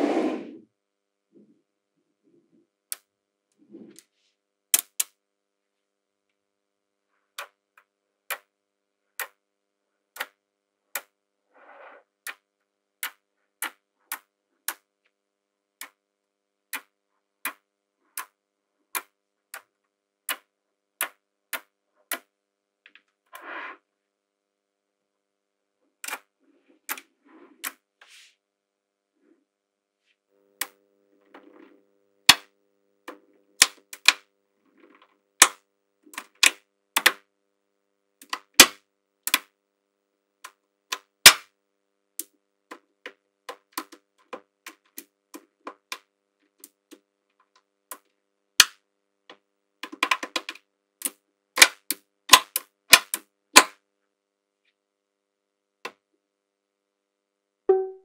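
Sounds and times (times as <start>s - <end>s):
magnetic balls clicking together: 4.8s - 5.2s, 10.1s - 11.2s, 12.2s - 14.9s, 16.7s - 22.3s.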